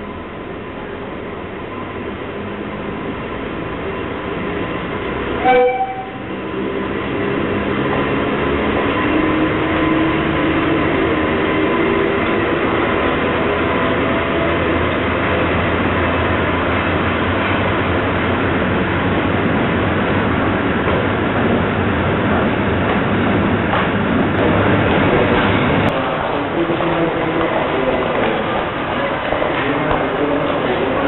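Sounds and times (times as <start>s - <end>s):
freight train rumbling past: 0.0s - 31.0s
locomotive horn blast: 5.4s - 6.3s.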